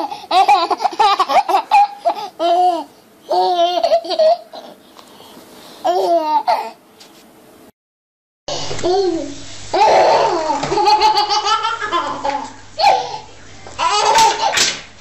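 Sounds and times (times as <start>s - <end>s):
baby laughing and squealing: 0.0s - 4.8s, 8.6s - 14.7s.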